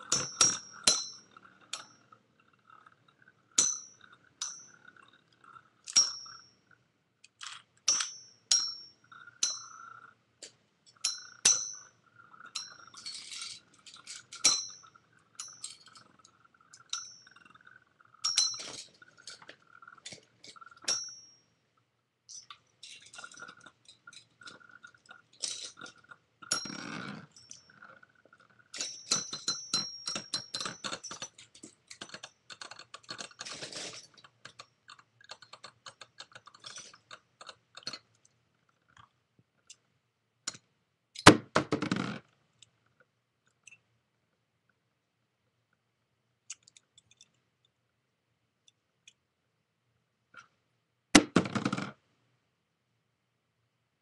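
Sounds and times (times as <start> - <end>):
spinning tops clicking and clinking: 0.0 - 6.7, 10.9 - 21.5, 22.3 - 27.9, 28.6 - 38.1.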